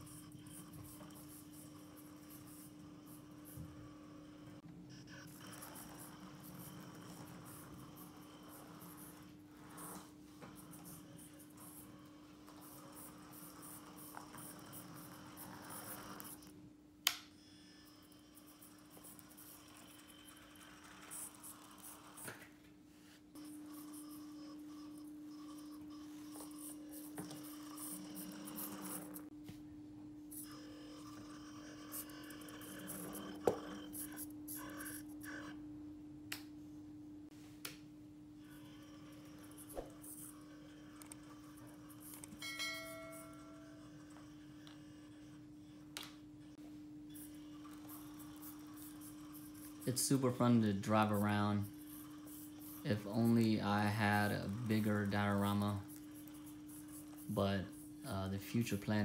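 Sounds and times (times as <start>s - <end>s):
rc car motor whirring: 0.0s - 16.6s, 17.4s - 22.3s, 23.4s - 29.3s, 30.3s - 35.6s, 38.4s - 42.4s, 47.1s - 59.0s
faint hum: 0.0s - 59.0s
ringing chime tone: 42.3s - 44.2s.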